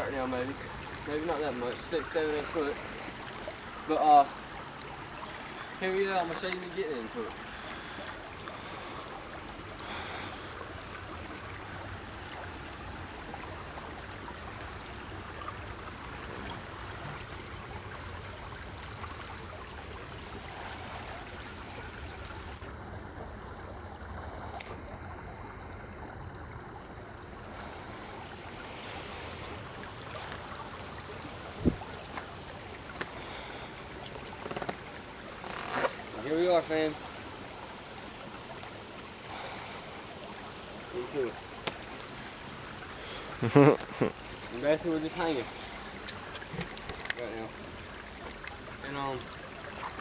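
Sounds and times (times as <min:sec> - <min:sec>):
stream water pouring into pool: 0:00.0 - 0:50.0.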